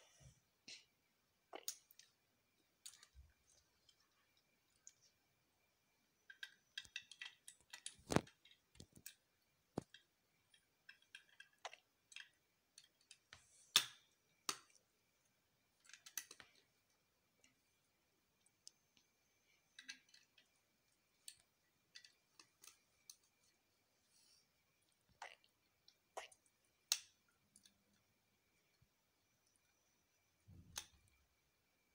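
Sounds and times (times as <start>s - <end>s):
plastic bricks clicking and rattling: 6.3s - 9.2s.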